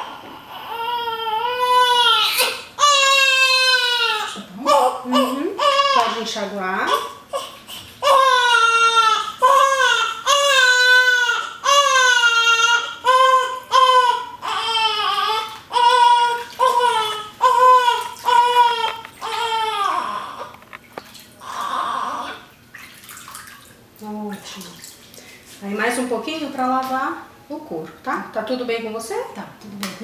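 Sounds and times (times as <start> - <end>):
newborn baby crying: 0.0 - 20.6, 21.4 - 22.5.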